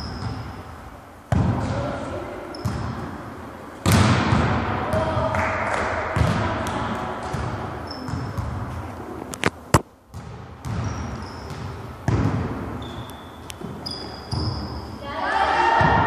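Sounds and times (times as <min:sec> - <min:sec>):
sneaker squeaks on court floor: 0:00.0 - 0:00.5, 0:02.5 - 0:03.1, 0:07.3 - 0:08.6, 0:10.6 - 0:15.0
echoing hall noise: 0:00.0 - 0:09.4, 0:10.2 - 0:16.0
volleyball being hit: 0:03.8 - 0:07.6, 0:12.0 - 0:12.7.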